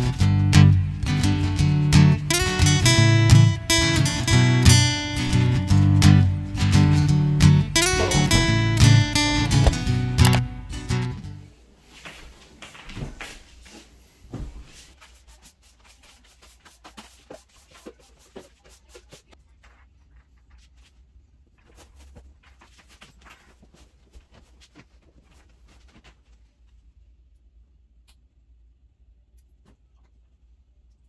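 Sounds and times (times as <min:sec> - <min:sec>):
objects being handled: 0:07.7 - 0:10.5.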